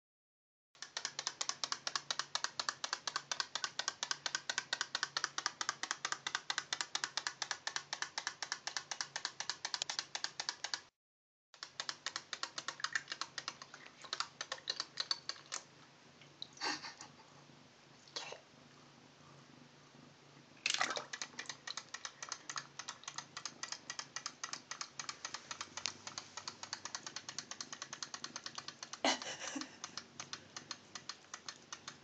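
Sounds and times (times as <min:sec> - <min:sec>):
toy mechanism clicking rapidly: 0:00.8 - 0:10.9, 0:11.6 - 0:15.6, 0:21.0 - 0:32.0.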